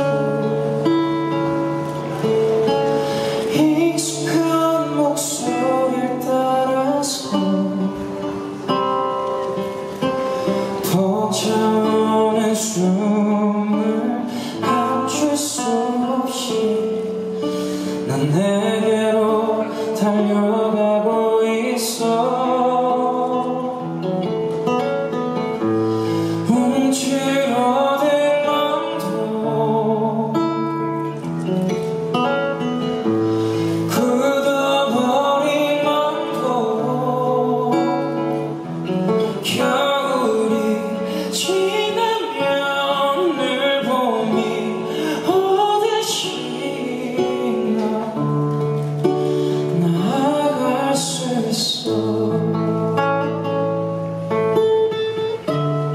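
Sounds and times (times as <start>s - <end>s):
acoustic guitar: 0.0s - 55.9s
man singing into microphone: 3.2s - 8.8s, 10.6s - 24.3s, 26.2s - 31.2s, 33.6s - 53.5s.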